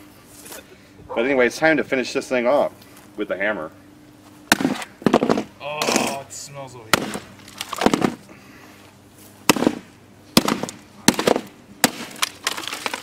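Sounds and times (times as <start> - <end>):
hammer smashing plastic: 6.9 - 8.2, 10.4 - 13.0.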